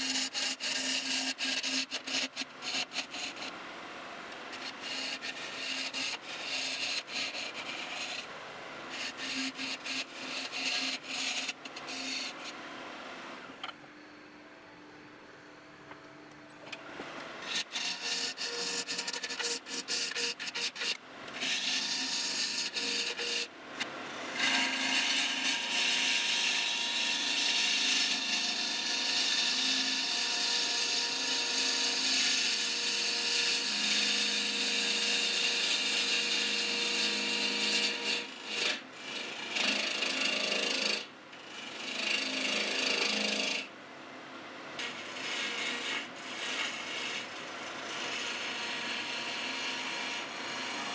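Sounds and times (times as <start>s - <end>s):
gouge scraping wood on a lathe: 0.0s - 3.5s, 4.5s - 8.3s, 8.9s - 12.6s, 17.4s - 23.5s, 24.1s - 43.7s, 44.8s - 50.9s.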